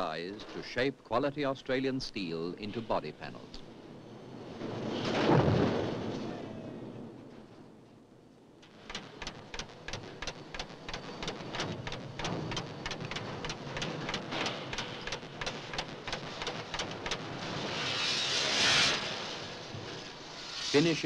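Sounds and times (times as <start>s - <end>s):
steady hiss: 0.0s - 3.9s, 8.6s - 21.0s
spot welder crackling: 8.6s - 19.0s.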